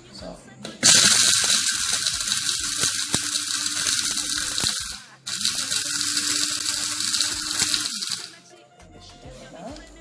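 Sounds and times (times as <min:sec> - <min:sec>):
electric spice grinder running: 0:00.8 - 0:08.4.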